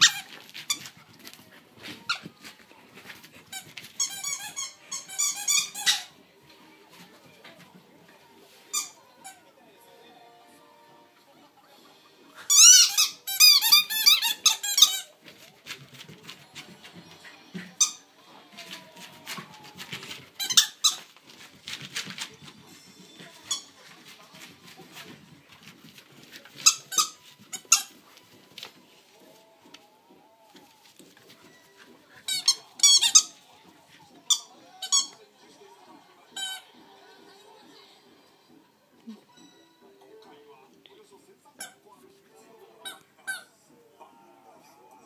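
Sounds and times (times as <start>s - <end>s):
squeaky dog toy squeaking: 0.0s - 0.8s, 3.5s - 6.2s, 8.7s - 9.4s, 12.5s - 15.2s, 23.4s - 23.8s, 26.6s - 28.0s, 32.3s - 33.4s, 34.2s - 35.2s, 41.6s - 41.8s.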